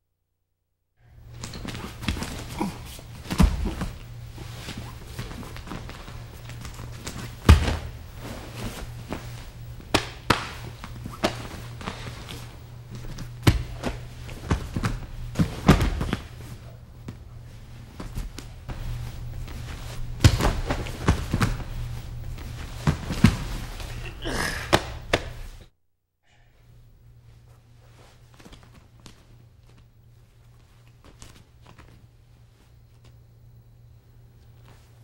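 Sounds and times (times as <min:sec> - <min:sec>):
steady low hum: 0:01.0 - 0:35.0
bodies thudding on mats: 0:01.4 - 0:25.6.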